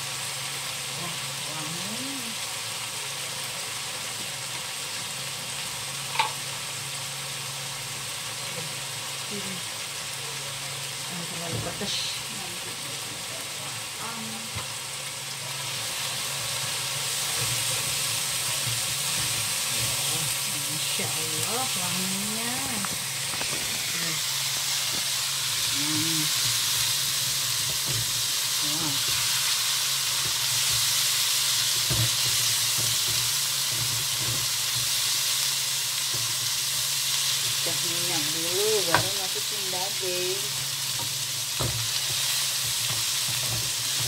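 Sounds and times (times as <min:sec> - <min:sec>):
spices sizzling in hot oil: 0:00.0 - 0:44.0
spatula stirring in wok: 0:40.5 - 0:44.0.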